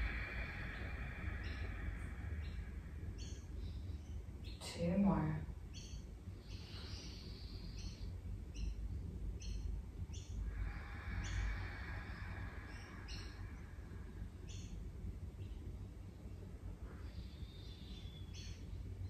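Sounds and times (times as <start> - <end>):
deep breath hiss: 0.0 - 4.4, 10.4 - 18.1
low steady hum: 0.0 - 19.0
small birds chirping: 0.0 - 19.0.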